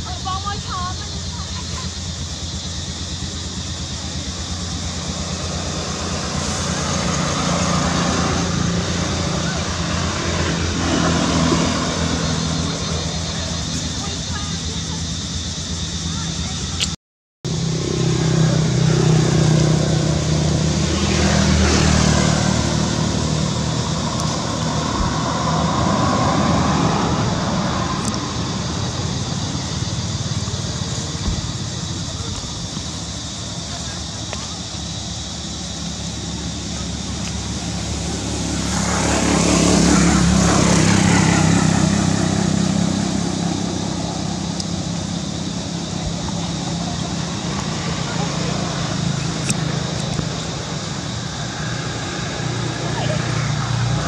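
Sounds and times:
passing traffic rumble: 0:00.0 - 0:54.0
vehicle engine humming: 0:00.0 - 0:54.0.

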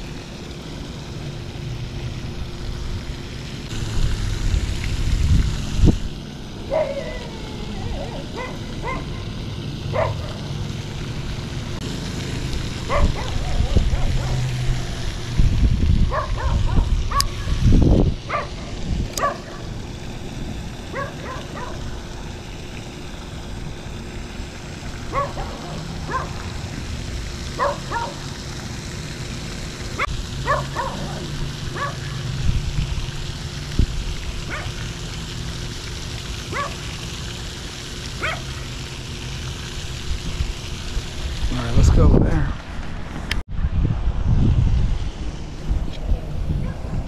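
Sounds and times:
wind rumbling on microphone: 0:02.2 - 0:09.0, 0:12.5 - 0:22.5, 0:30.0 - 0:34.7, 0:39.8 - 0:47.0
dog barking: 0:06.7 - 0:07.2, 0:08.0 - 0:09.2, 0:09.9 - 0:10.4, 0:12.9 - 0:14.4, 0:16.1 - 0:17.4, 0:18.3 - 0:18.6, 0:19.2 - 0:19.6, 0:20.9 - 0:21.8, 0:25.1 - 0:26.4, 0:27.6 - 0:28.2, 0:30.0 - 0:32.0, 0:34.5 - 0:34.8, 0:36.5 - 0:36.8, 0:38.2 - 0:38.4.

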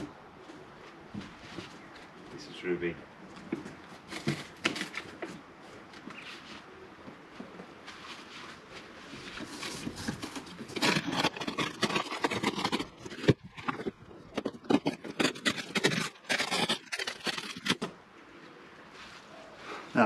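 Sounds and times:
cardboard box scraping on artificial grass: 0:07.8 - 0:13.9.

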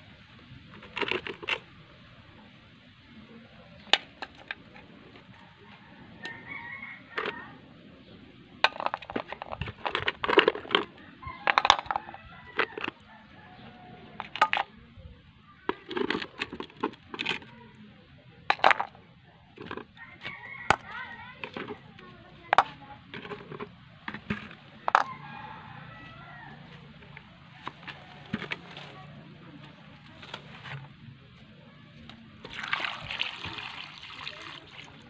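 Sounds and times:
snail shells clacking on metal pan: 0:08.6 - 0:13.0, 0:14.2 - 0:14.7.

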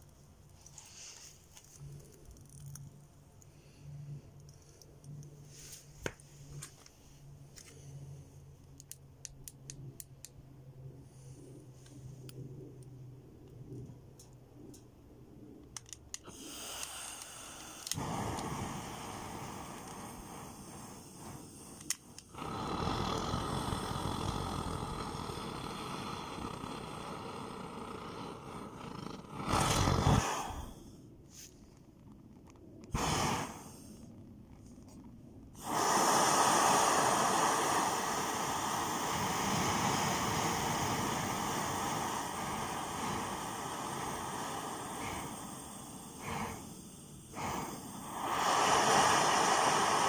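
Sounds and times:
pressure burners hissing: 0:16.2 - 0:30.8, 0:35.6 - 0:50.0.

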